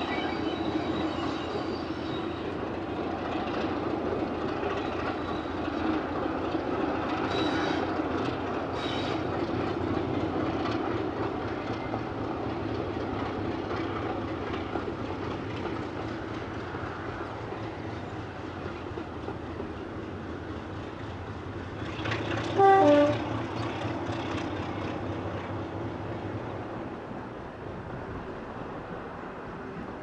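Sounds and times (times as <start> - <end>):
diesel locomotive engine running: 0.0 - 30.0
wheels clicking over rail joints: 2.5 - 25.8.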